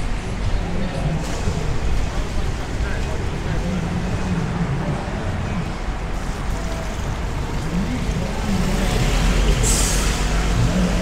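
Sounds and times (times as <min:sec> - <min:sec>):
crowd chatter: 0:00.0 - 0:11.0
traffic rumble: 0:00.0 - 0:11.0.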